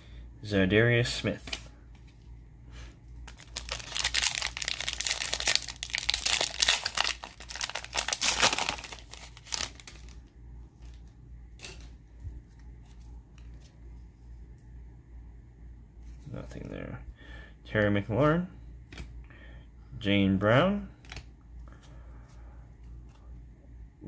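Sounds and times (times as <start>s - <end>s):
plastic wrapper crinkling and tearing: 3.2s - 11.0s
cards rustling: 3.2s - 11.1s.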